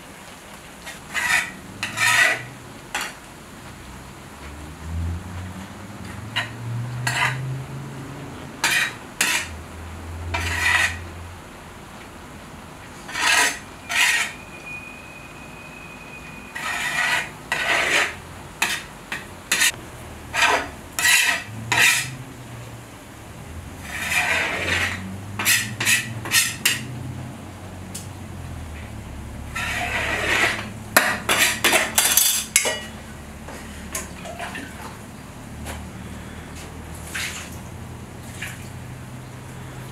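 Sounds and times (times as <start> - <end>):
metal skimmer scraping rice in pot: 0.9 - 3.2, 8.6 - 9.5, 10.4 - 11.0, 13.1 - 14.5, 16.4 - 18.9, 19.5 - 22.2, 23.8 - 26.9, 29.5 - 32.9.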